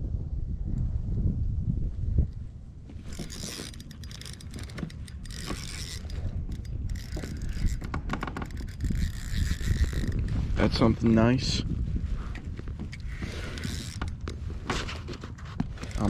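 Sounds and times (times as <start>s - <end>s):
wind rumbling on microphone: 0.0s - 16.0s
fishing reel clicking whir: 3.1s - 10.9s, 12.9s - 14.4s.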